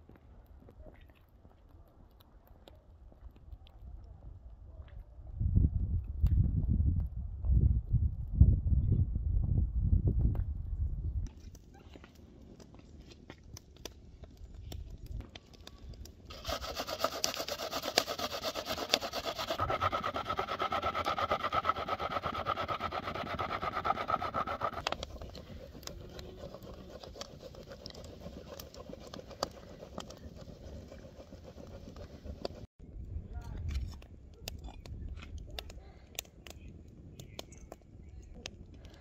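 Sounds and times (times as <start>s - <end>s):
onion grated on metal grater: 16.3s - 32.6s.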